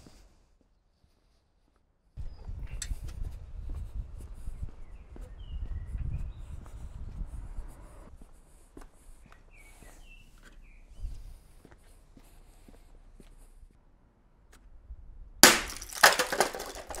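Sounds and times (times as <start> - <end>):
footsteps on cobblestones: 2.4 - 13.8
bird chirps: 4.8 - 6.6, 9.3 - 11.1.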